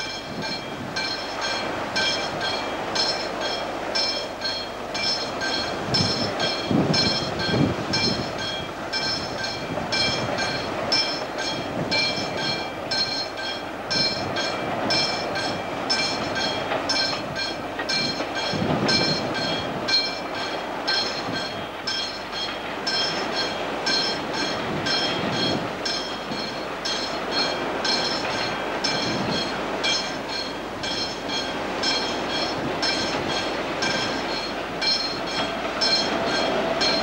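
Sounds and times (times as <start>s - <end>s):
train wagons rumbling on rails: 0.0s - 37.0s.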